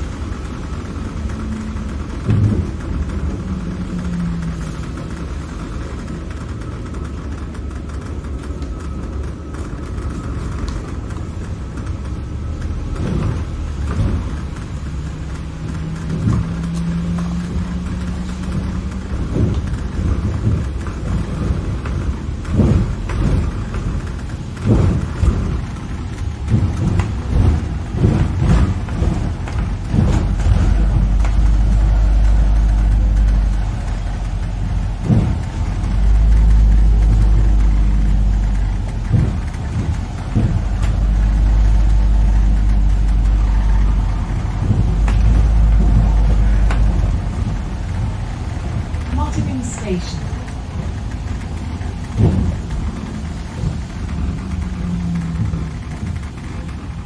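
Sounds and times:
bus engine and road rumble: 0:00.0 - 0:57.0
knocks and rattles: 0:00.0 - 0:57.0.

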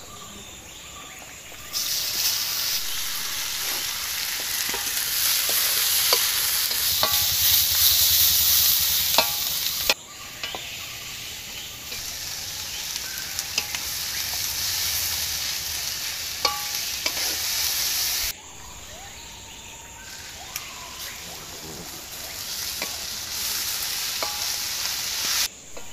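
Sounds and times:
onions sizzling in hot oil: 0:01.5 - 0:18.4, 0:20.0 - 0:25.9
spatula scraping metal pan: 0:03.1 - 0:10.8.

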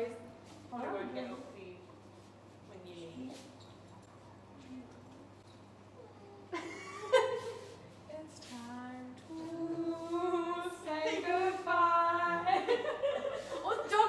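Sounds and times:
women singing: 0:08.1 - 0:12.9, 0:13.6 - 0:14.0.

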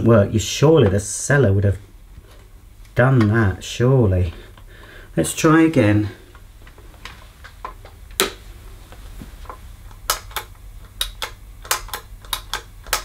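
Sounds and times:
vacuum switch clicking: 0:07.8 - 0:08.4, 0:09.9 - 0:13.0.

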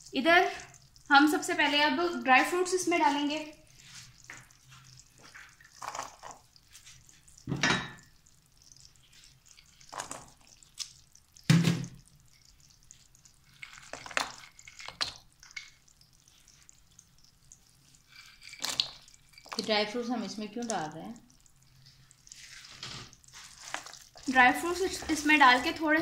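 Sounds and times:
sugar syrup bubbling: 0:00.0 - 0:26.0
nuts plopping into syrup: 0:05.2 - 0:06.6, 0:09.7 - 0:16.1, 0:18.4 - 0:21.6.

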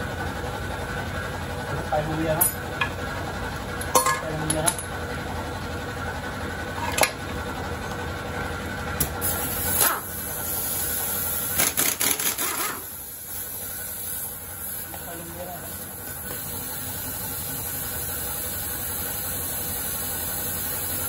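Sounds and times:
pneumatic impact wrench hammering: 0:09.0 - 0:14.9.

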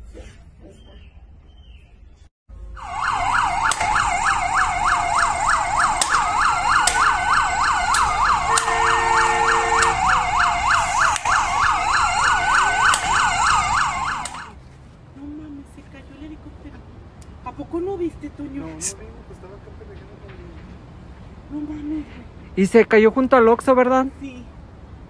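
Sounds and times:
siren wail: 0:02.6 - 0:14.6
siren yelp: 0:02.6 - 0:14.6.

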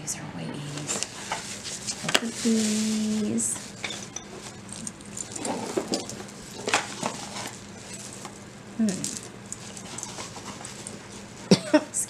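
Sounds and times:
jewelry clicking and clinking: 0:03.8 - 0:11.1.

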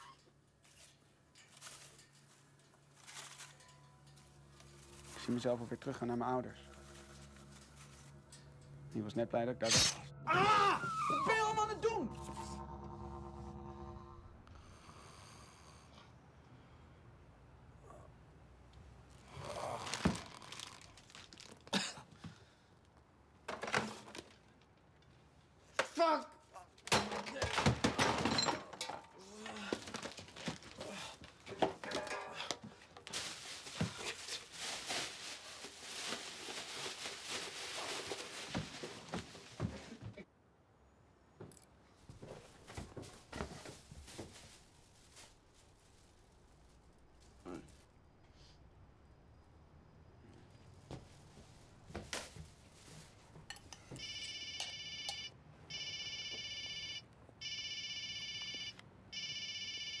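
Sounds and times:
plastic bag and bedclothes rustling: 0:19.4 - 0:21.8, 0:29.7 - 0:40.2, 0:42.2 - 0:47.9
telephone ringing: 0:54.0 - 1:00.0.

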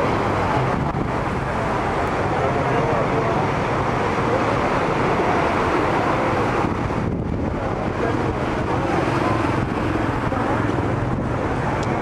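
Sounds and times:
car engines running: 0:00.0 - 0:12.0
tyres swishing through water: 0:00.0 - 0:12.0
wind rumbling on microphone: 0:00.0 - 0:12.0.

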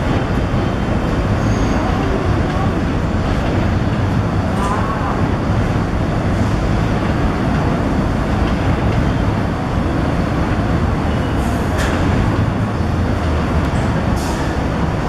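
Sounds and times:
subway train wheels rumbling on rails: 0:00.0 - 0:15.0.

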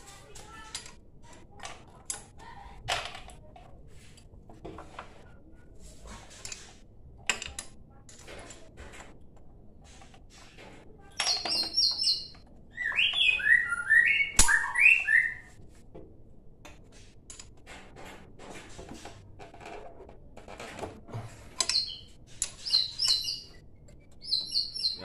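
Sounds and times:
songbird chirping: 0:11.1 - 0:15.6, 0:21.6 - 0:25.0.

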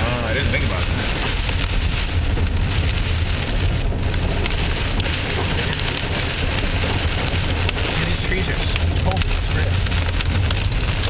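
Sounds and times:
rain and hail on car roof: 0:00.0 - 0:11.0
tyres rumbling on wet road: 0:00.0 - 0:11.0.

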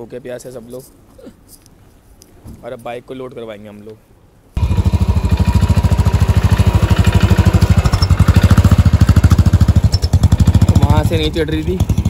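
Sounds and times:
motorcycle engine running: 0:04.6 - 0:12.0.

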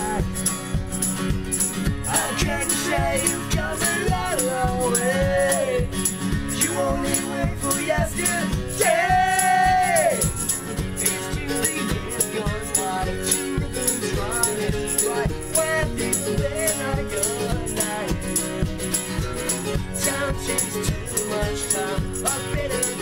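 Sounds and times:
strummed acoustic guitar: 0:00.0 - 0:23.0
group singing: 0:02.1 - 0:05.8, 0:06.5 - 0:10.3, 0:11.0 - 0:18.7, 0:19.5 - 0:23.0.

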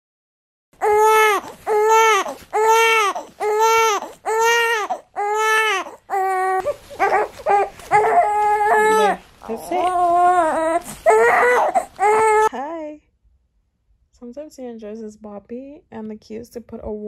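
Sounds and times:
newborn baby crying: 0:00.8 - 0:12.5.

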